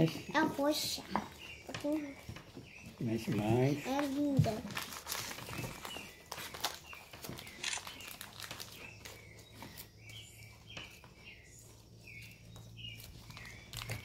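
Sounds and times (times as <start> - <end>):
paper packet crinkling: 4.0 - 9.9.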